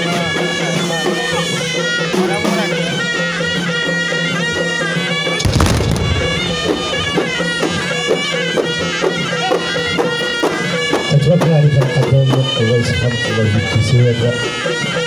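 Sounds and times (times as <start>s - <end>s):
reed pipes playing melody: 0.4s - 15.0s
frame drums beating: 5.4s - 10.4s.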